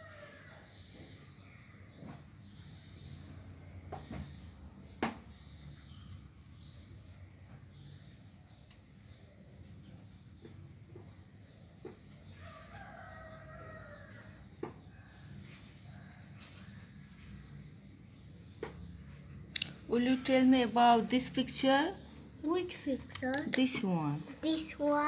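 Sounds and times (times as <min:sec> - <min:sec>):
pencil scratching on paper: 0:00.0 - 0:25.0
rooster crowing: 0:12.4 - 0:14.5.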